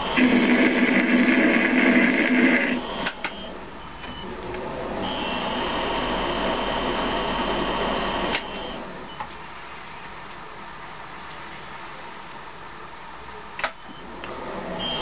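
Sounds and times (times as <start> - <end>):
lathe cutting noise: 0.0 - 3.3
lathe running with high whine: 0.0 - 9.0.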